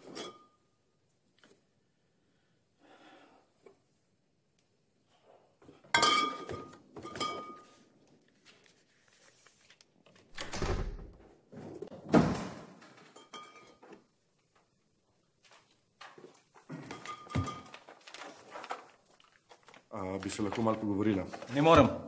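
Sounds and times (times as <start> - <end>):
glass bottles clinking: 5.9 - 7.8, 13.1 - 13.9, 16.7 - 17.9.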